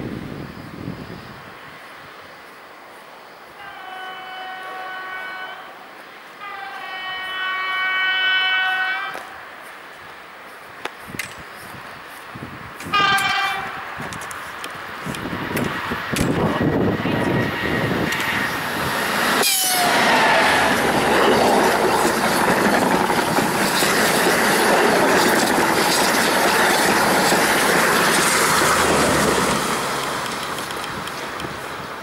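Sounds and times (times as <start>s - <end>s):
train rushing roar: 3.5s - 9.8s, 12.8s - 32.0s
wheels clicking over rail joints: 20.8s - 32.0s.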